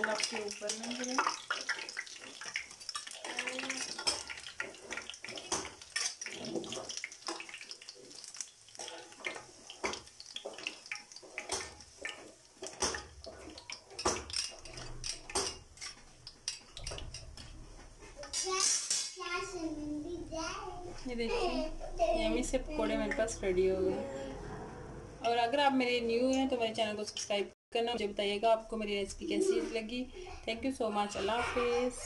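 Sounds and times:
metal utensil clinking on pan: 0.0s - 8.0s, 9.0s - 17.5s
hot oil hissing and crackling: 0.0s - 19.8s.

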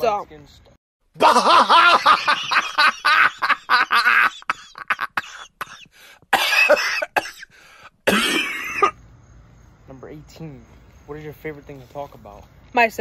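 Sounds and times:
person coughing and laughing: 1.2s - 9.0s.

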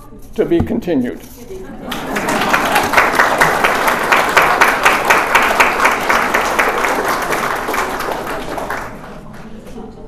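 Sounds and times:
audience applauding: 1.9s - 9.5s.

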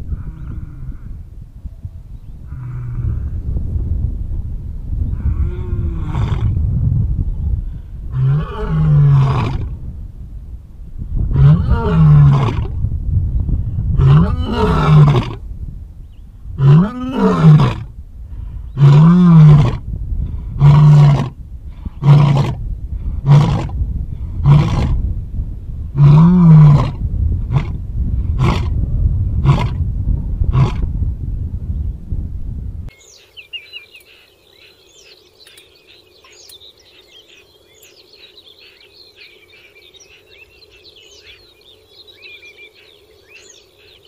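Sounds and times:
lion roaring: 11.3s - 12.8s, 14.0s - 15.4s, 16.6s - 17.9s, 18.7s - 19.8s, 20.4s - 21.4s.

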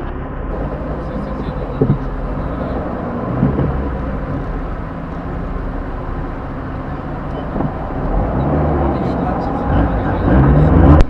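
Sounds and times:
car engine and road noise: 0.0s - 11.0s
short thump: 0.8s - 4.7s.

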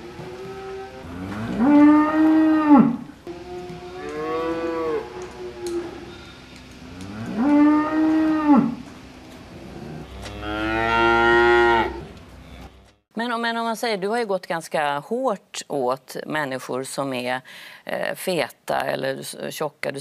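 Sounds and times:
cow mooing: 0.1s - 8.8s, 9.6s - 13.0s.

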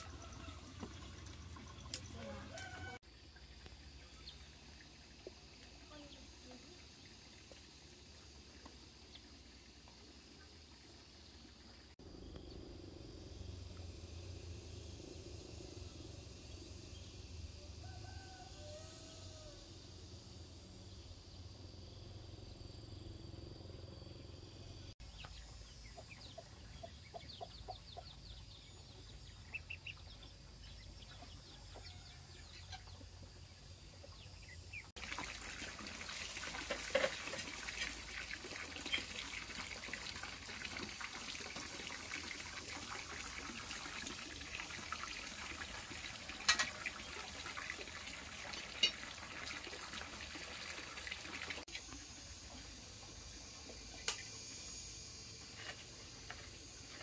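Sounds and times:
water running and splashing: 0.0s - 3.0s, 34.9s - 54.0s
chickens clucking: 26.0s - 28.2s.

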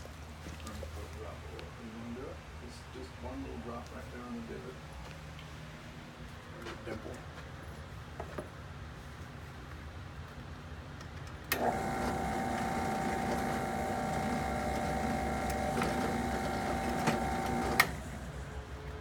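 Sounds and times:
drill press motor whining: 11.5s - 18.6s.

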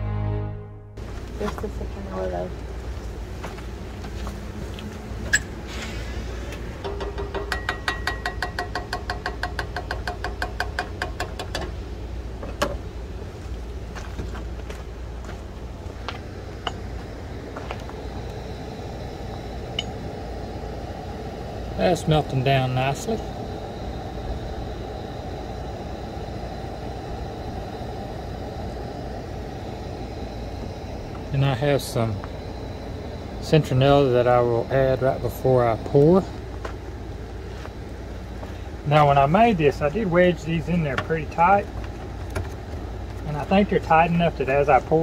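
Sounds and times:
gas stove flame rumbling: 1.0s - 45.0s
wooden spoon tapping metal saucepan: 6.9s - 11.6s.

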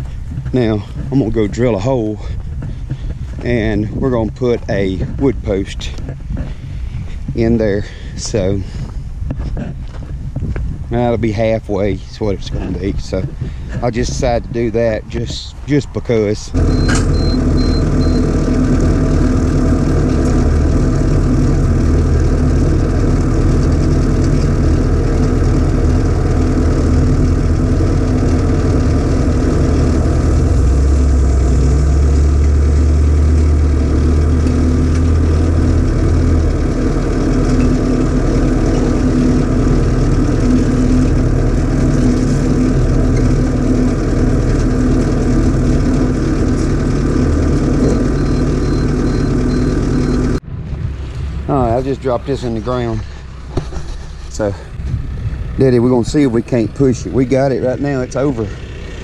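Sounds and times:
tractor engine droning: 0.0s - 59.0s
auger boring into soil: 16.6s - 50.4s.

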